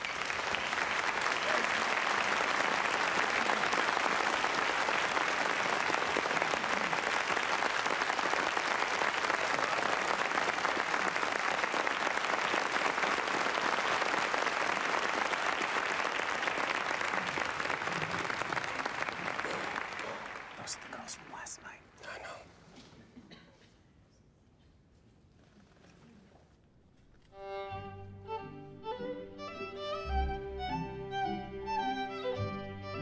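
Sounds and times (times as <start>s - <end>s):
audience applauding: 0.0s - 21.8s.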